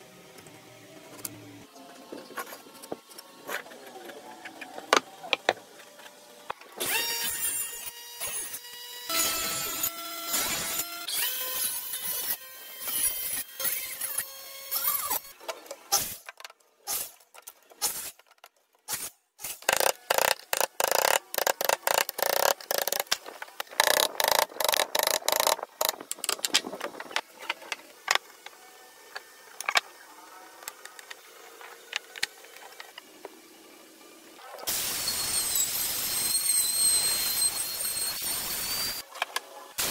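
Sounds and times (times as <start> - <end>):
hand sawing wood: 19.6 - 26.2.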